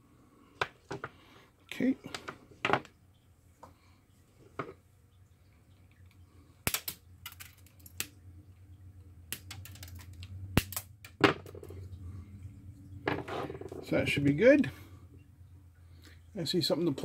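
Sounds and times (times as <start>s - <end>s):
faint low hum: 0.0s - 17.0s
small tools clicking and tapping: 9.3s - 10.9s.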